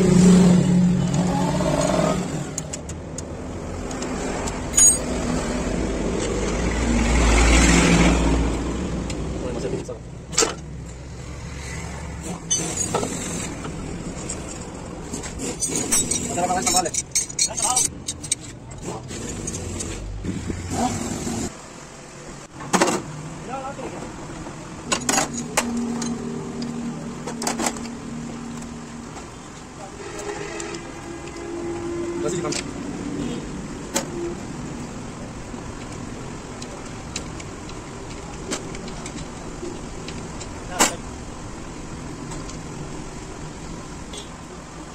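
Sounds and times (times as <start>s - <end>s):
steady background noise: 0.0s - 44.9s
sharp metal clicks and knocks: 35.7s - 41.1s.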